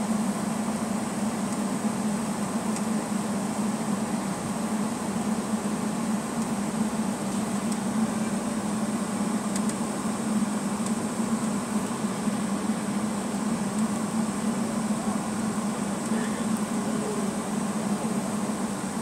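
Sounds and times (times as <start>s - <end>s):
jet engines idling drone: 0.0s - 19.0s
faint high whine: 11.2s - 19.0s.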